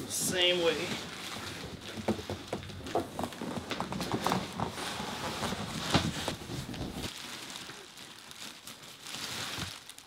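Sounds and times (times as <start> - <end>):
cardboard scraping and rustling: 0.3 - 7.2.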